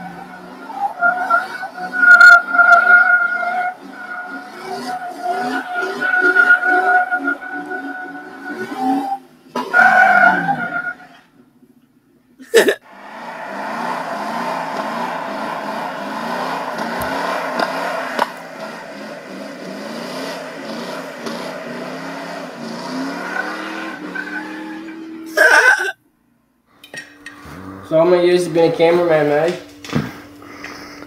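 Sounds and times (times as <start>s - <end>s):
engine revving hard: 12.8s - 25.6s
tyres spinning in dirt: 13.0s - 25.4s.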